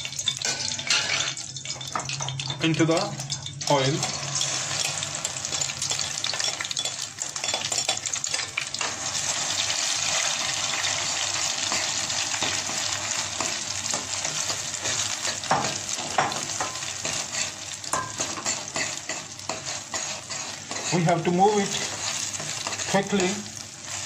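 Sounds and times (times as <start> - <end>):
batter sizzling in a pot: 0.0 - 24.0
spatula scraping a pot: 16.0 - 24.0.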